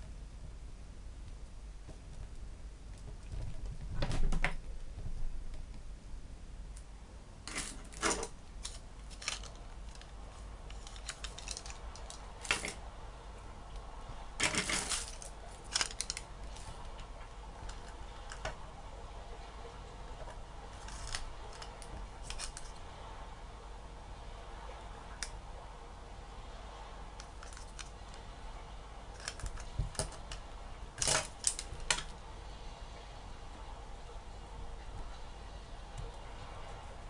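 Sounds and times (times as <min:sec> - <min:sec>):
plastic clicks and rustles: 0:07.5 - 0:12.8, 0:14.4 - 0:18.6, 0:20.2 - 0:22.8, 0:29.2 - 0:30.4, 0:31.0 - 0:32.1.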